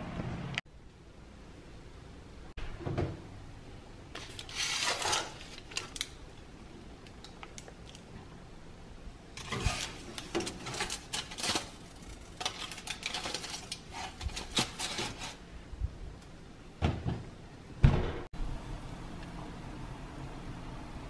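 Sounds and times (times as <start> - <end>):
baking tray scraping on oven rack: 4.5 - 5.4, 9.4 - 11.8, 12.4 - 15.4
oven door thump: 16.8 - 18.3.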